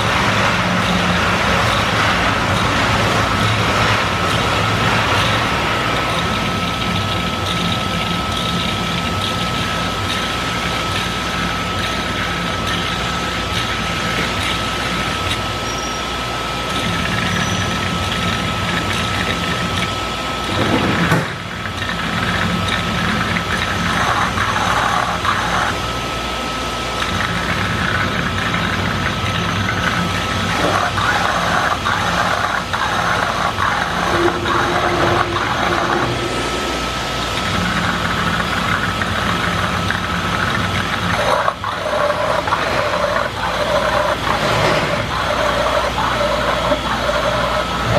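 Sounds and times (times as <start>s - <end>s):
machine hum and hiss: 0.0s - 47.9s
thin high whine: 15.4s - 18.2s, 30.5s - 39.0s.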